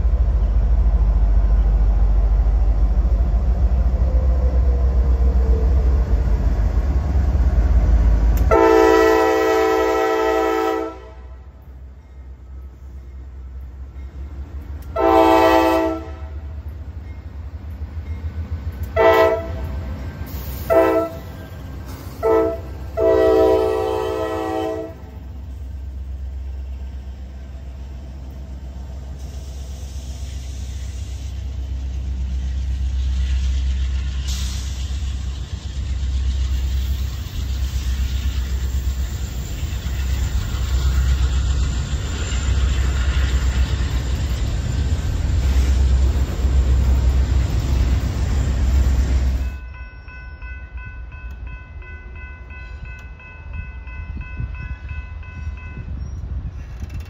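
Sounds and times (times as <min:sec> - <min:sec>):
freight train rumbling by: 0:00.0 - 0:57.0
locomotive horn blasts: 0:08.4 - 0:11.5, 0:14.9 - 0:16.5, 0:18.9 - 0:19.7, 0:20.6 - 0:21.3, 0:22.1 - 0:25.2.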